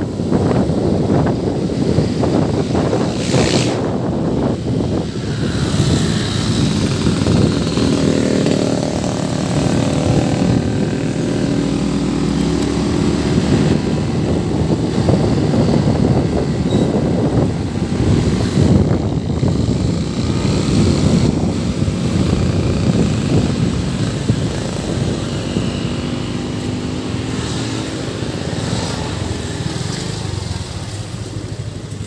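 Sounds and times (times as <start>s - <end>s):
motorcycle engine running: 0.0s - 32.0s
wind and road rush: 0.0s - 32.0s.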